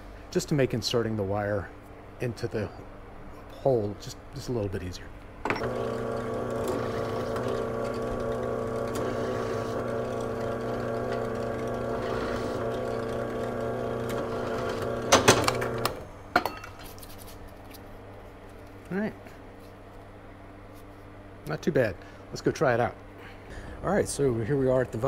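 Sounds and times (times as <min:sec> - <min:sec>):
drill press motor humming: 0:05.5 - 0:16.1.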